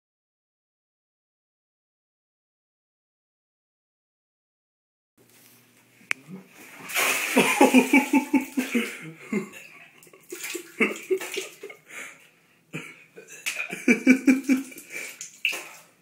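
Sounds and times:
vomit splashing into water: 6.7s - 9.0s, 10.0s - 11.8s, 13.5s - 16.0s
man retching and vomiting: 7.0s - 11.8s, 12.7s - 15.3s.

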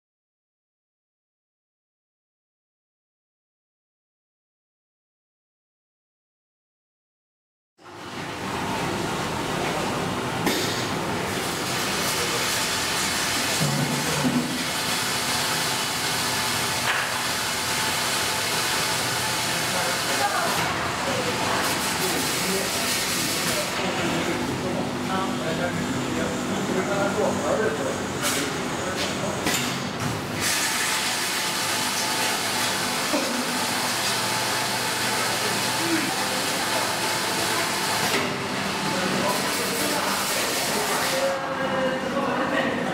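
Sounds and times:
cask washer jets hissing: 10.6s - 29.3s, 30.3s - 41.4s
hiss of wash jets spraying: 30.4s - 38.2s.

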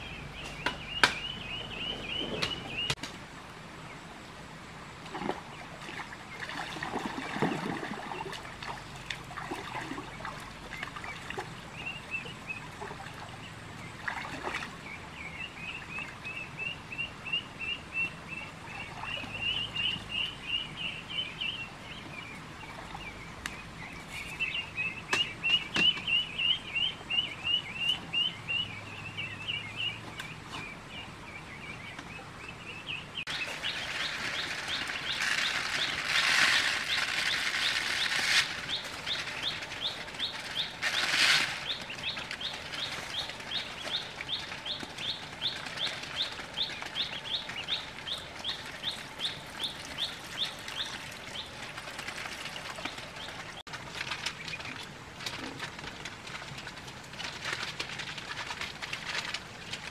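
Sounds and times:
ducklings peeping: 0.0s - 3.0s, 9.8s - 14.0s, 14.8s - 53.6s
rustling handling noise: 33.3s - 59.9s.

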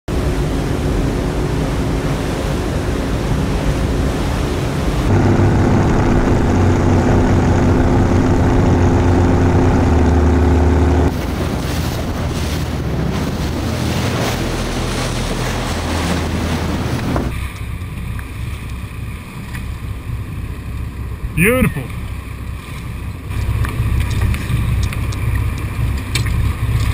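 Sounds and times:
outboard motor running: 0.1s - 26.9s
water rushing past hull: 0.1s - 26.9s
wind buffeting microphone: 0.4s - 18.6s.

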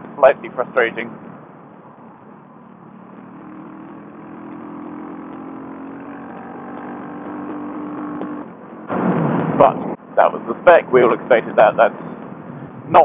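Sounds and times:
road noise: 0.0s - 13.0s
motorcycle engine pulling: 2.9s - 8.5s
wind noise: 8.9s - 10.0s.

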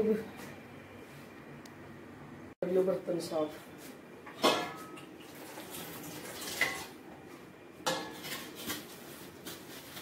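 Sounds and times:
dishes clattering in a sink: 4.3s - 6.9s, 7.8s - 8.4s.

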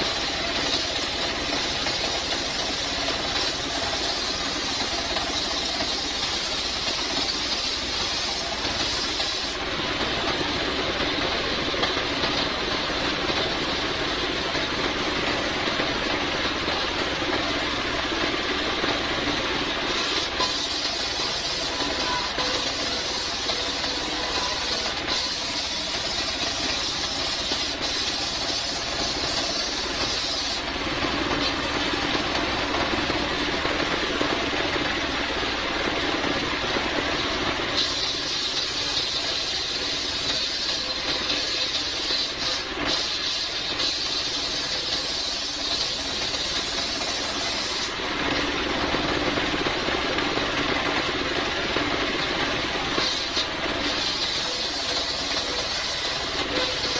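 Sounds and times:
circular saw cutting log: 0.0s - 9.6s, 19.9s - 30.7s.

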